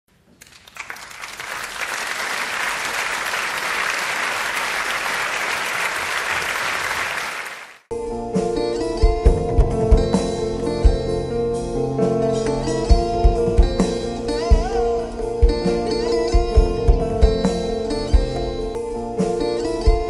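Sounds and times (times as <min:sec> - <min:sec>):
crowd applauding: 0:00.3 - 0:07.9
guitar music: 0:07.9 - 0:20.0.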